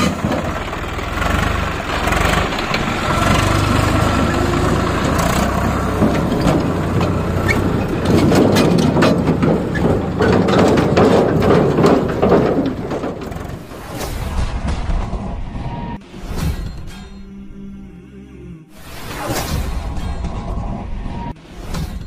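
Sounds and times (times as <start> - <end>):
diesel tractor engine running: 0.0 - 16.0
clatter of short knocks: 6.0 - 13.6.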